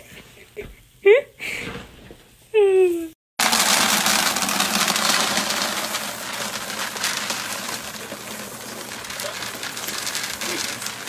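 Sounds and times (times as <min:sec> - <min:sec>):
dry kibble pouring into plastic bin: 0:03.4 - 0:11.0.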